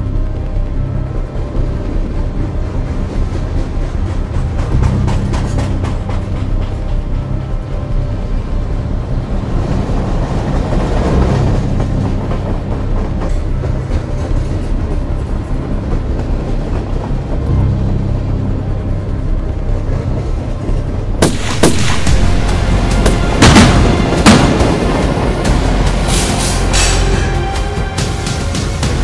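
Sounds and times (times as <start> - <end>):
background music: 0.0 - 29.0
freight train rumbling past: 0.0 - 29.0
rail clatter: 0.0 - 29.0
sharp bangs: 21.2 - 29.0.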